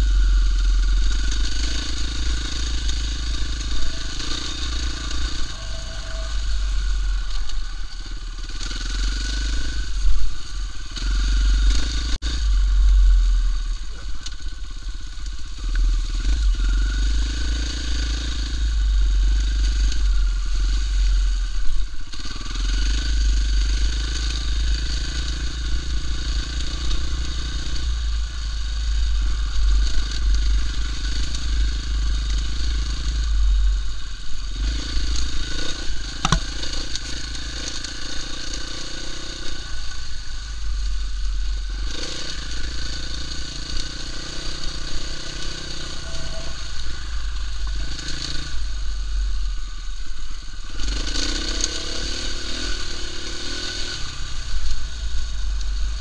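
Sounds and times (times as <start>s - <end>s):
dirt bike engine revving: 0.0s - 56.0s
sharp knock: 36.2s - 36.5s.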